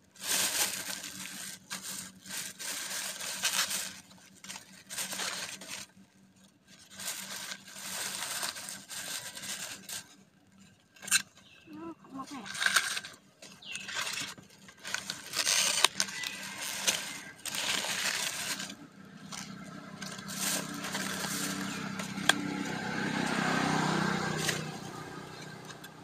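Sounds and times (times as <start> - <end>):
plastic bags rustling: 0.0 - 26.0
foam boxes being opened: 0.1 - 6.0, 6.8 - 10.1, 12.1 - 22.5.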